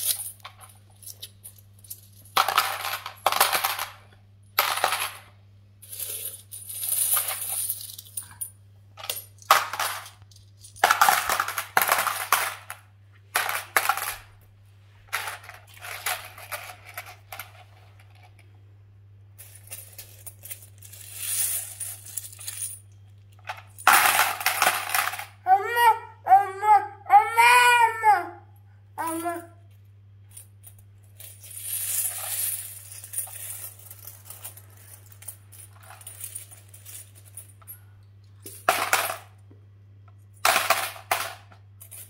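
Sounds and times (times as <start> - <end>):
coins clinking: 0.0 - 4.0, 4.6 - 12.8, 19.4 - 25.3, 30.3 - 39.3, 40.3 - 42.0.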